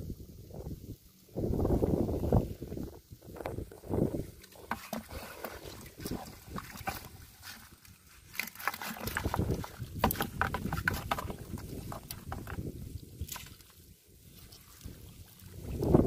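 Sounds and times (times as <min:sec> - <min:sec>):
wet netting rustling: 0:04.1 - 0:16.0
fish slapping in plastic bucket: 0:04.4 - 0:13.7.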